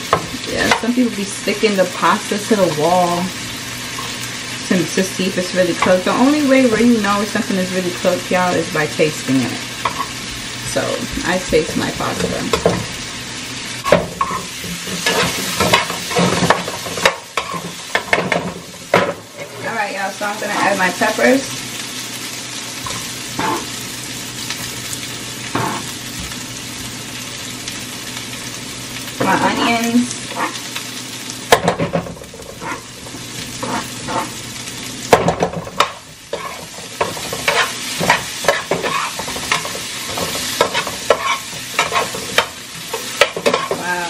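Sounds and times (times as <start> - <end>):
vegetables sizzling in a frying pan: 0.0 - 44.0
utensil scraping a pan: 14.2 - 19.8, 22.9 - 23.7, 29.2 - 30.6, 31.7 - 34.4, 35.4 - 43.8.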